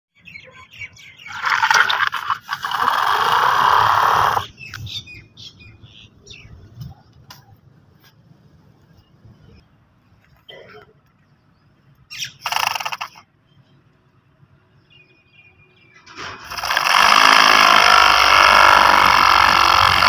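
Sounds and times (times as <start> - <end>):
toy motor grinding whirr: 1.3 - 4.5, 12.4 - 13.2, 16.2 - 20.0.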